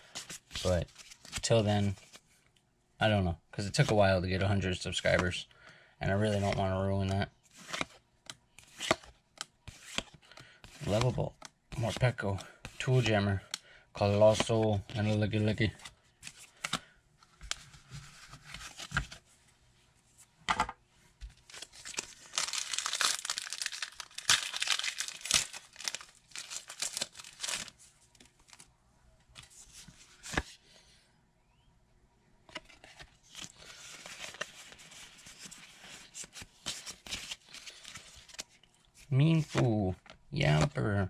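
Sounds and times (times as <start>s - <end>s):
cards being handled: 0.0s - 2.2s, 6.2s - 19.2s, 21.3s - 28.7s, 29.4s - 30.6s, 32.5s - 40.8s
foil wrapper crinkling and tearing: 21.5s - 27.7s.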